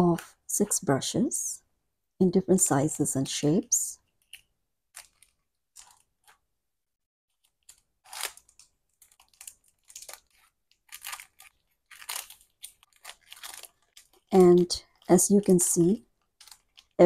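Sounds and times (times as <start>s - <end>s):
plastic sleeves crinkling: 4.1s - 6.5s, 7.3s - 17.0s.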